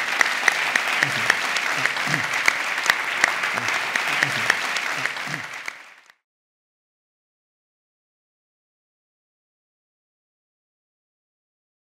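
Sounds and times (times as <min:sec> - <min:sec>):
sharp evenly spaced claps: 0:00.0 - 0:06.1
audience applauding: 0:00.0 - 0:06.2.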